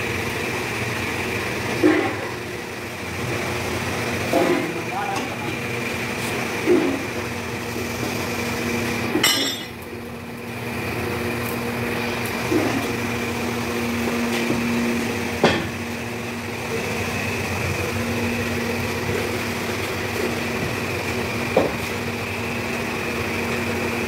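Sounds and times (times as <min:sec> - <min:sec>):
machine hum: 0:00.0 - 0:24.0
sharp metal clanks: 0:09.2 - 0:09.8.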